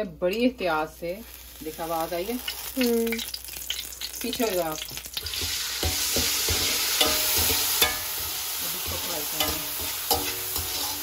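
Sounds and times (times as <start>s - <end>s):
peas sizzling in hot oil: 0.4s - 11.0s
wire strainer clinking on metal: 7.0s - 8.1s.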